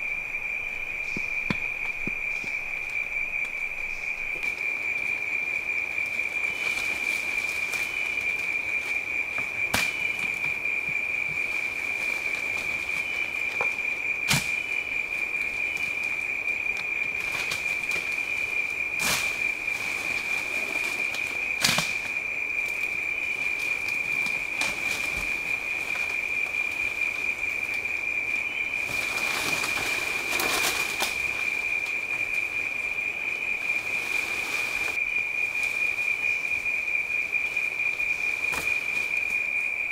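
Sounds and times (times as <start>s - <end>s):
rainforest insects droning: 0.0s - 39.9s
rustling: 16.9s - 35.0s.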